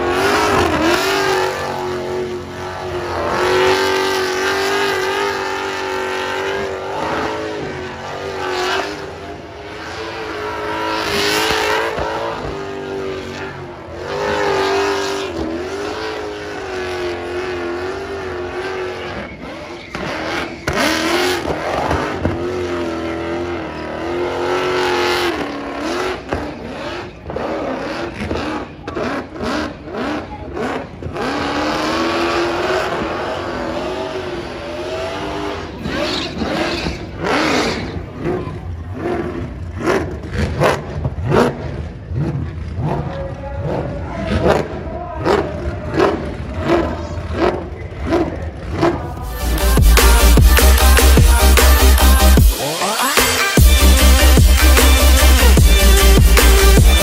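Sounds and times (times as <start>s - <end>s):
car engine revving high: 0.0s - 57.0s.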